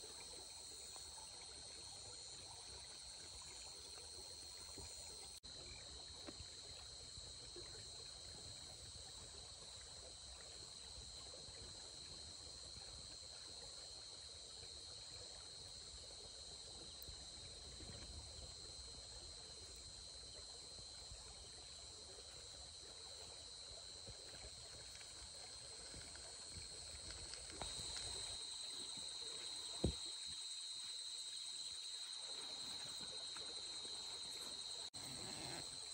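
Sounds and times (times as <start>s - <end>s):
running river water: 0.0s - 35.9s.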